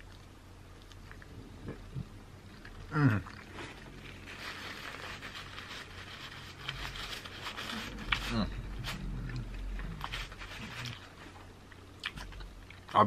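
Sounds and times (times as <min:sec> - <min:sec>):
paper napkin rustling: 0:03.6 - 0:09.1, 0:10.0 - 0:11.4
man gnawing chicken wing bone: 0:05.2 - 0:12.9.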